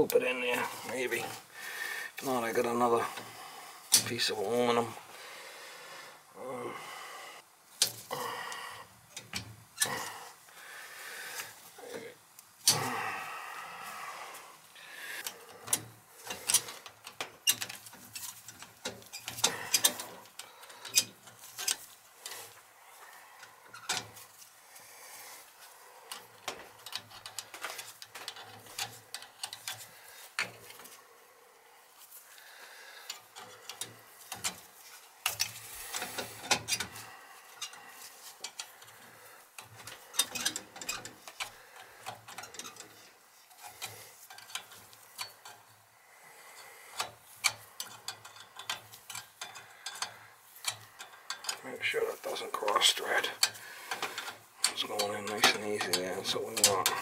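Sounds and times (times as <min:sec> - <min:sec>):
hands clicking and scraping metal fittings: 0:02.1 - 0:04.9, 0:14.3 - 0:31.0, 0:31.9 - 0:57.0.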